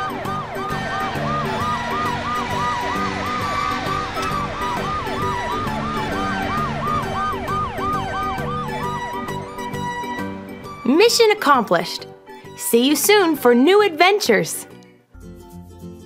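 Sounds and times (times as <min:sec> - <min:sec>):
police siren yelping: 0:00.0 - 0:11.2
background music: 0:00.0 - 0:16.0.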